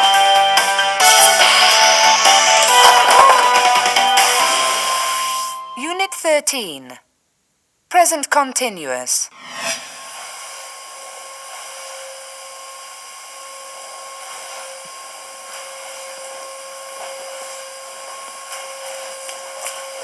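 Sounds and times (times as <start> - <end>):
vacuum cleaner running: 0.2 - 5.6, 9.5 - 20.0.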